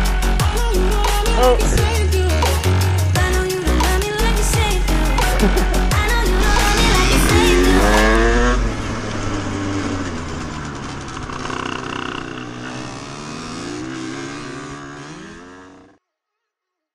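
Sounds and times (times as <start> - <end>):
music with heavy beat: 0.0 - 8.4
moped engine revving: 1.0 - 16.0.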